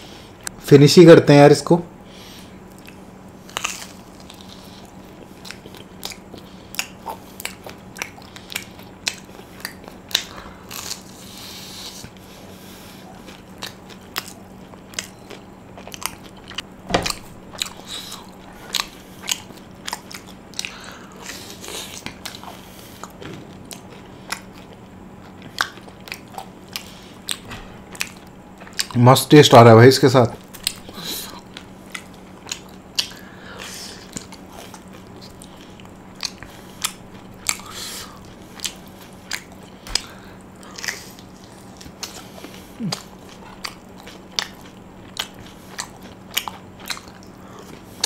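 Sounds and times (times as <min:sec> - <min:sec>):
faint steady hum: 0:00.0 - 0:48.0
crunchy food chewing: 0:02.2 - 0:29.2, 0:30.2 - 0:48.0.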